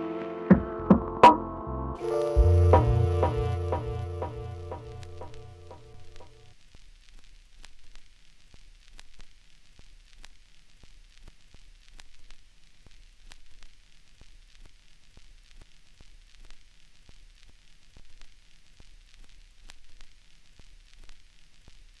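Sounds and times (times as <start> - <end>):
low hum: 0.6 - 6.5
vinyl crackles and pops: 2.0 - 22.0
vinyl record hiss: 2.0 - 22.0.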